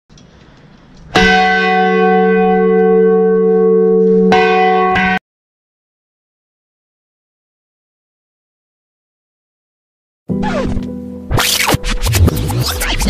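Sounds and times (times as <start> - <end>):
large church bell ringing: 1.1 - 5.2.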